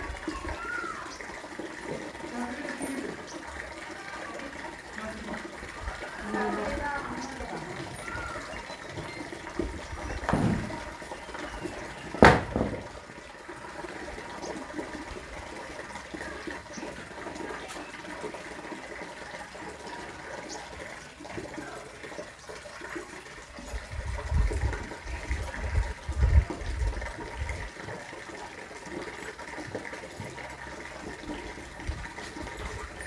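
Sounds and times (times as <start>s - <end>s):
sharp knock: 12.2s - 12.9s.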